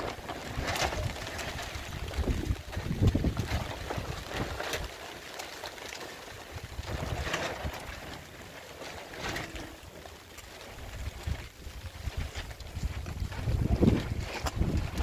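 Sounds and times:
wind buffeting the microphone: 0.0 - 4.9, 6.5 - 8.0, 10.8 - 15.0.

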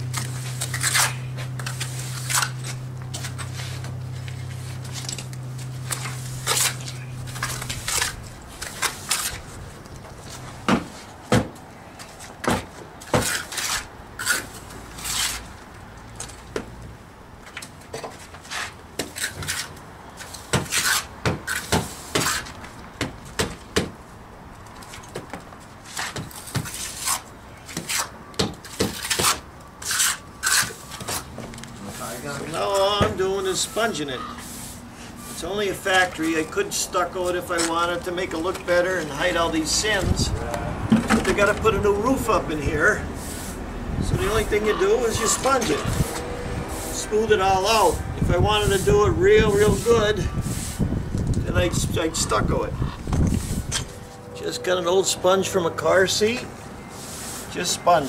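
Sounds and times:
steady low hum: 0.0 - 12.5
hand tools scraping mortar: 0.1 - 11.1, 13.1 - 15.5, 18.0 - 22.7, 25.8 - 40.1, 40.9 - 50.9.

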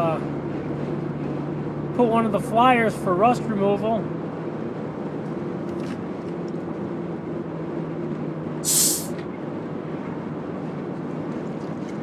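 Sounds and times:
car road and engine noise: 0.0 - 12.0
short loud hiss: 8.6 - 9.2.

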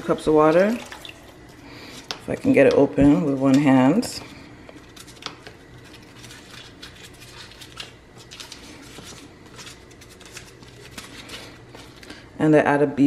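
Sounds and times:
faint steady hum: 0.0 - 13.0
foil wrapper crinkling: 3.2 - 12.3.

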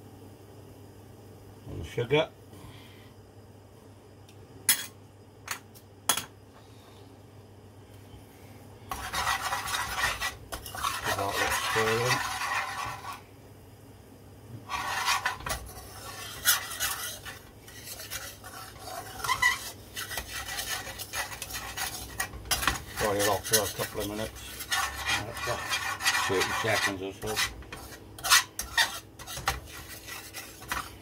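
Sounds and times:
metal spoon scraping pan: 8.9 - 13.2, 14.6 - 31.0
ghee sizzling: 8.9 - 13.3, 14.6 - 31.0.

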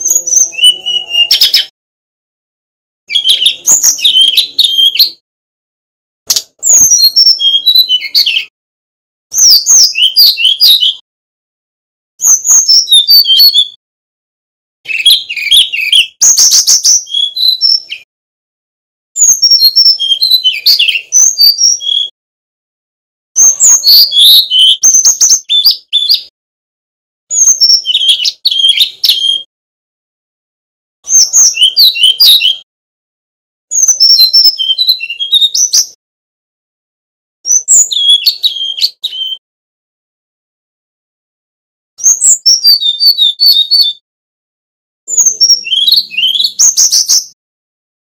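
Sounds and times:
flycatcher singing whistled notes: 0.0 - 1.8, 6.4 - 8.5, 9.3 - 11.0, 12.2 - 13.8, 14.9 - 18.1, 19.2 - 22.2, 23.4 - 26.3, 27.3 - 29.5, 31.0 - 32.7, 33.7 - 36.0, 37.5 - 39.4, 42.0 - 44.0.

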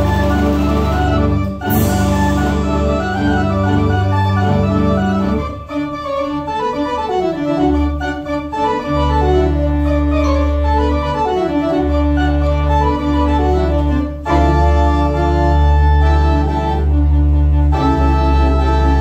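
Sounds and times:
pipe organ playing chords: 0.0 - 19.0.

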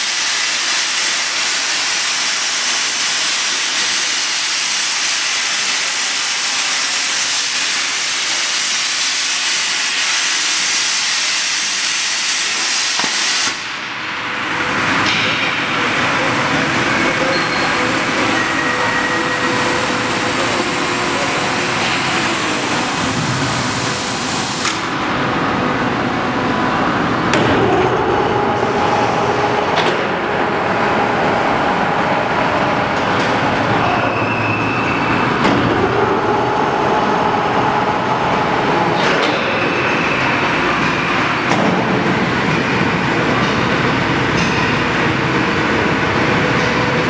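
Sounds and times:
steady machine noise: 0.0 - 47.0
plasma torch hissing: 6.9 - 13.7.

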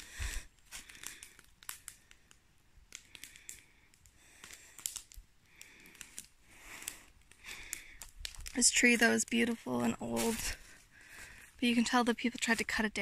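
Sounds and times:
rustling in undergrowth: 5.8 - 13.0.

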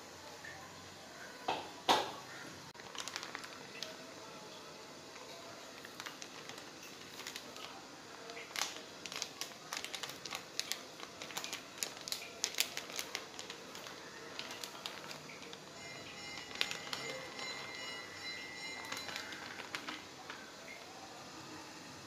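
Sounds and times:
plastic sheet crinkling: 2.7 - 4.4, 5.0 - 20.9.

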